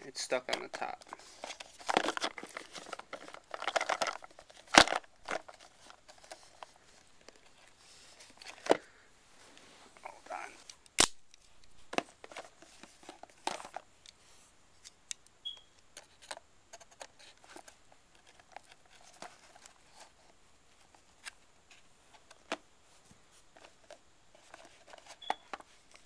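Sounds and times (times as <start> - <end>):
paper rustling: 0.5 - 10.7.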